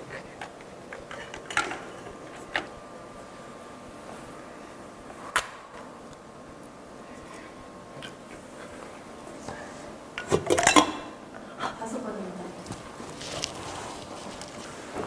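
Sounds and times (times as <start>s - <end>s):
metal pots clinking: 1.0s - 2.7s, 10.2s - 11.2s.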